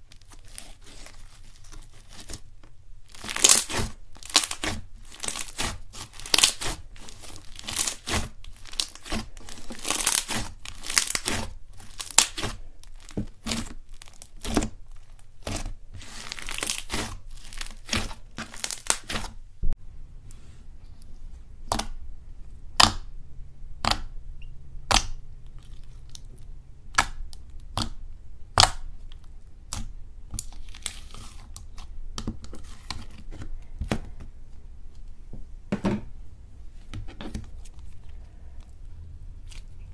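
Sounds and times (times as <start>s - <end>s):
slime crackling and popping: 0.0s - 19.4s.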